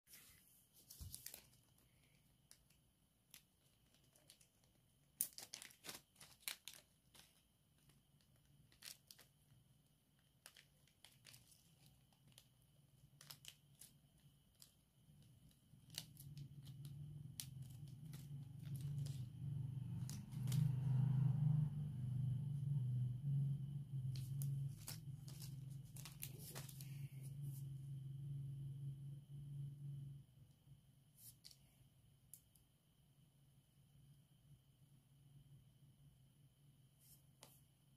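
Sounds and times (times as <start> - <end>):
plastic bag crinkling: 0.8 - 21.1, 24.0 - 27.1
low hum: 14.6 - 31.1.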